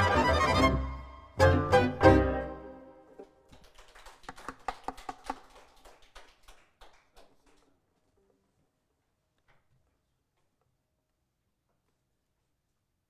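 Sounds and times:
faint handclaps: 0:03.2 - 0:07.8.

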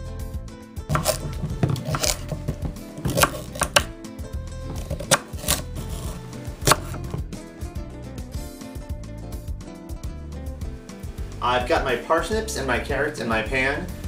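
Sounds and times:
background music: 0:00.0 - 0:14.0
knife chopping on wooden board: 0:00.9 - 0:04.0, 0:04.6 - 0:07.4.

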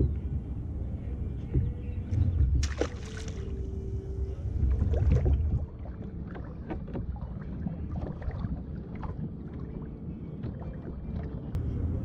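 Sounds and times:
wind rumble on microphone: 0:00.0 - 0:12.0
water lapping against kayak hull: 0:04.4 - 0:11.6.

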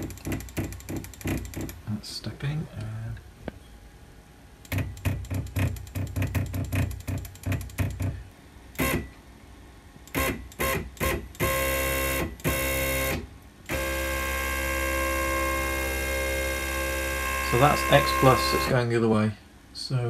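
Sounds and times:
stepper motor steps: 0:10.1 - 0:18.8
stepper motor whine: 0:11.4 - 0:18.8.

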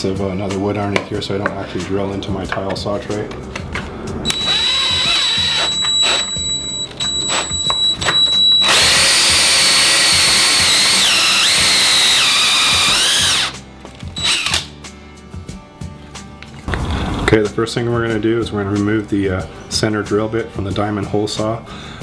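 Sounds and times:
drill hole saw cutting plywood: 0:04.3 - 0:13.6, 0:14.2 - 0:14.7.

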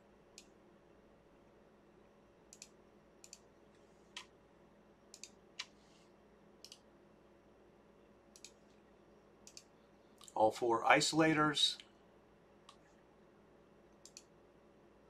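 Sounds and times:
low steady hum: 0:00.0 - 0:15.0
computer mouse clicks: 0:02.5 - 0:04.3, 0:05.1 - 0:05.8, 0:06.6 - 0:06.9, 0:08.3 - 0:08.8, 0:09.4 - 0:10.4, 0:13.9 - 0:14.3.

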